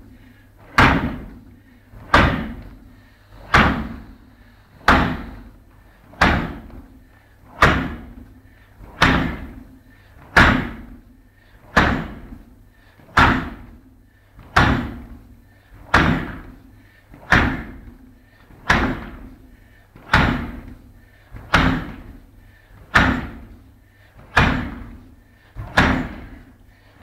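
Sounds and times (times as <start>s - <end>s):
shin kicks thudding on target: 11.8s - 12.3s, 23.0s - 23.5s, 24.4s - 25.0s, 25.6s - 26.4s.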